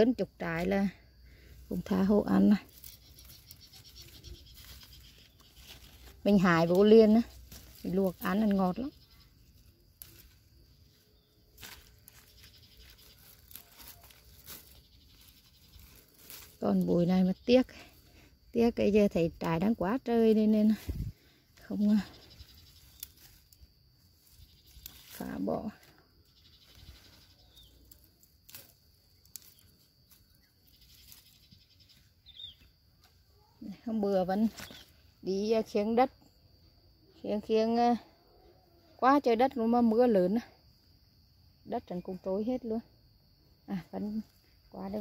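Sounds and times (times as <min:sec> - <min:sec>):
leaves rustling when handled: 0:00.0 - 0:36.0
small high chirp: 0:26.2 - 0:33.7.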